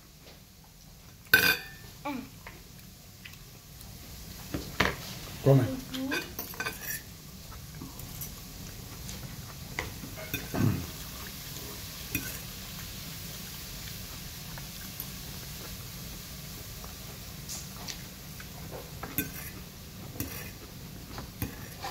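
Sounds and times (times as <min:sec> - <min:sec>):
fork clinking and scraping on plate: 0:01.4 - 0:01.8, 0:06.1 - 0:07.1, 0:09.8 - 0:10.6, 0:12.1 - 0:12.4, 0:19.0 - 0:19.6, 0:20.2 - 0:20.6.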